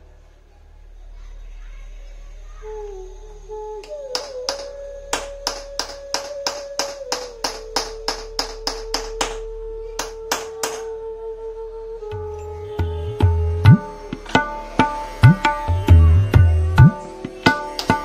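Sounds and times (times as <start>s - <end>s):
hammer tapping metal punch: 4.2s - 9.4s, 10.0s - 10.8s.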